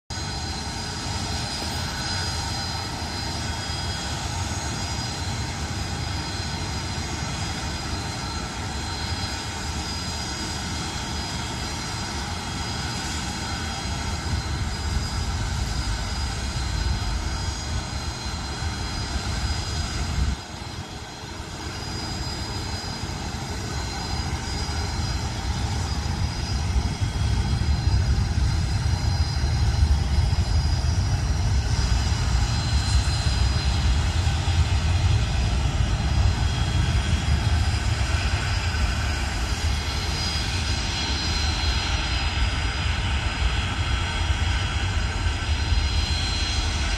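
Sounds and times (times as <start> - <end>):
jet engines whining: 0.1 - 46.9.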